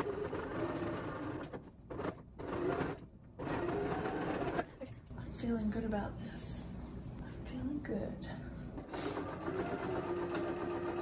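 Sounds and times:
sewing machine stitching: 0.0 - 4.8, 8.8 - 11.0.

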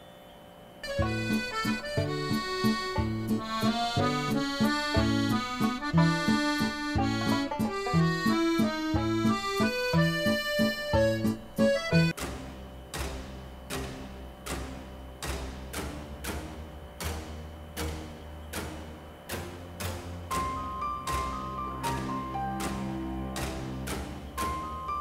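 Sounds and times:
comical accordion tune: 0.8 - 13.2.

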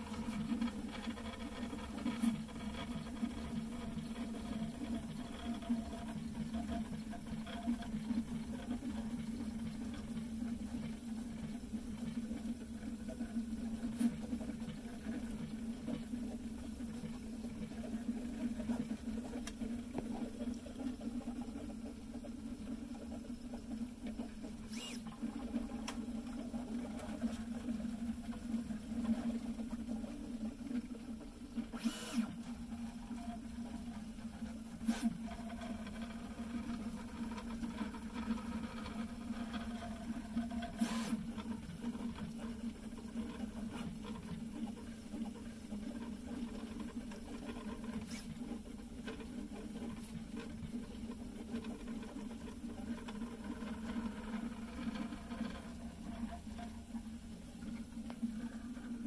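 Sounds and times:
stepper motors whirring: 24.7 - 25.1.

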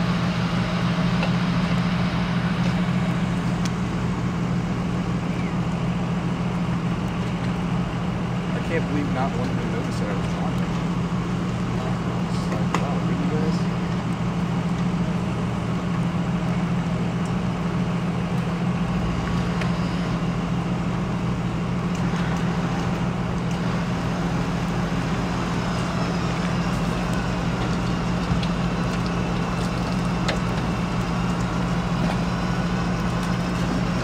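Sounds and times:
vehicle engine idling: 0.0 - 34.0.

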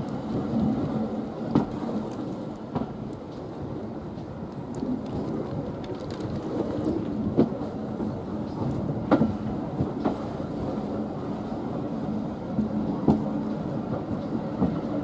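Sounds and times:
train rumble: 0.0 - 15.0.

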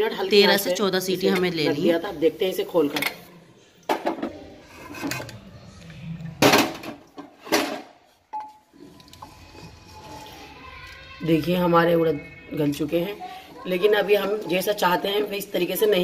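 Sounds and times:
stirring in a pot: 8.3 - 15.9.

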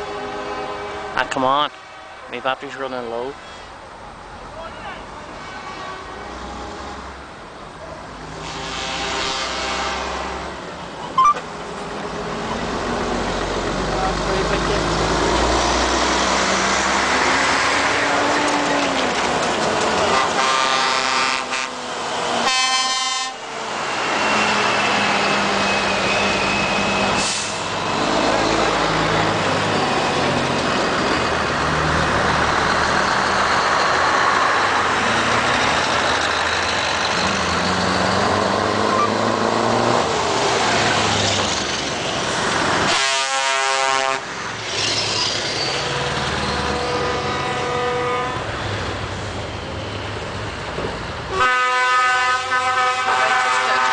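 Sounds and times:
air horn blasts: 0.0 - 2.3, 8.4 - 10.3, 20.1 - 21.8, 22.4 - 23.4, 42.9 - 44.3, 45.8 - 48.5, 51.3 - 53.9
heavy trucks driving past: 0.0 - 22.5, 23.2 - 53.9.

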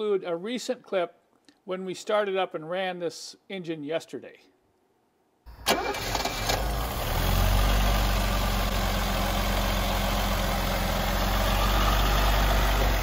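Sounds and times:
car engine idling: 5.7 - 13.0.

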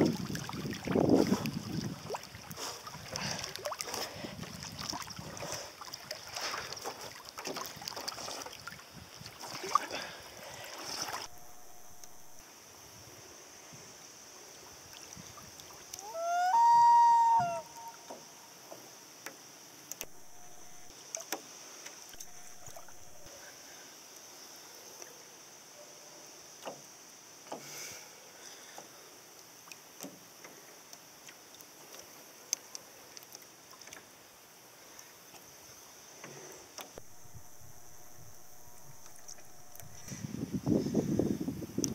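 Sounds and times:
water lapping against boat: 0.0 - 12.4
loon wailing call: 16.0 - 18.6
high insect buzz: 16.0 - 24.4, 35.6 - 41.8.

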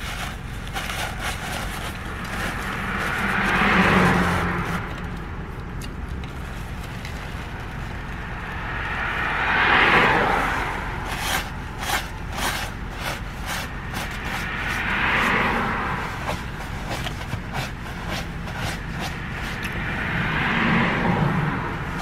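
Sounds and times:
car passing: 0.0 - 22.0.

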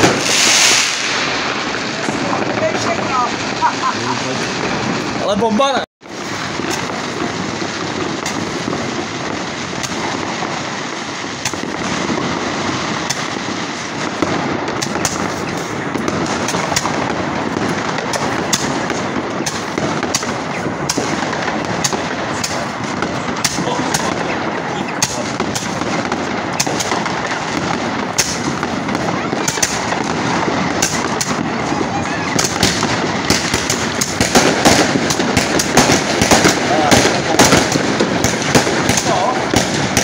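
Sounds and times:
firework fizzing hiss: 0.0 - 5.2, 6.0 - 40.0
firework pops and crackles: 0.0 - 40.0.

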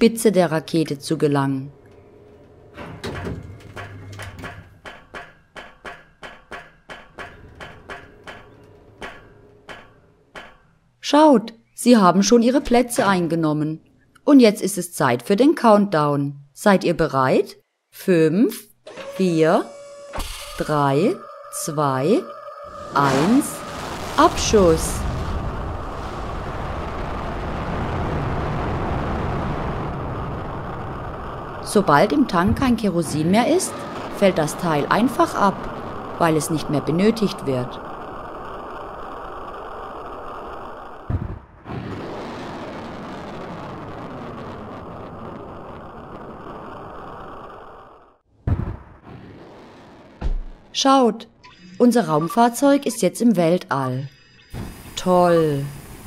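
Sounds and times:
low hum: 0.0 - 4.9, 18.8 - 41.6
rocket engine rumble: 19.6 - 50.8.

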